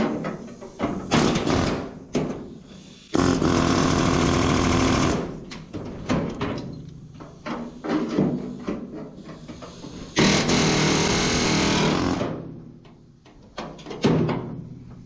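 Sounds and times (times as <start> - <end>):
air hammer on sheet steel: 0.0 - 5.5, 7.3 - 12.4.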